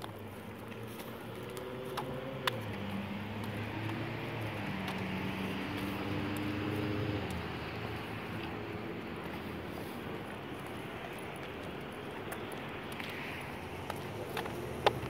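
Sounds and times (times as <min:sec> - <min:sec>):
vehicle passing by: 0:00.1 - 0:11.4.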